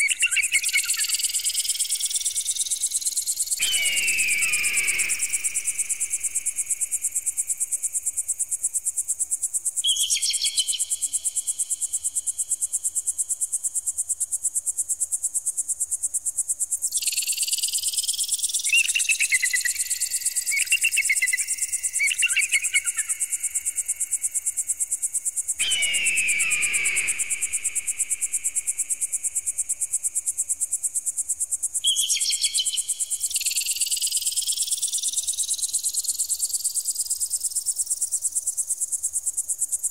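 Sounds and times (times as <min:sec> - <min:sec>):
short chirping calls: 0:00.0 - 0:07.5, 0:09.9 - 0:11.6, 0:17.0 - 0:23.8, 0:25.6 - 0:29.7, 0:31.8 - 0:35.8
falling bird cries: 0:03.6 - 0:06.8, 0:25.6 - 0:29.0.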